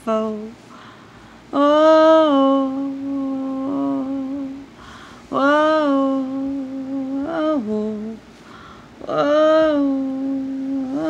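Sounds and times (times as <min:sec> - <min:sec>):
person humming held notes: 0:01.6 - 0:04.7, 0:05.3 - 0:08.2, 0:09.0 - 0:11.0.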